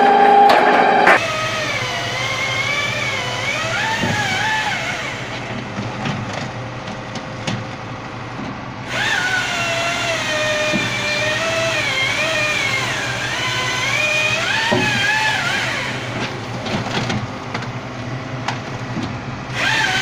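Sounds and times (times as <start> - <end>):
machine engine running: 1.0 - 20.0
sharp knocks: 10.6 - 11.2, 14.5 - 15.3.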